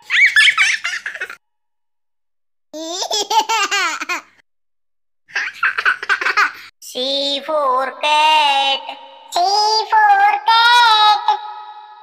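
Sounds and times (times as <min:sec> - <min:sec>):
small child laughing: 0:00.0 - 0:01.4, 0:02.8 - 0:04.4, 0:05.3 - 0:06.7.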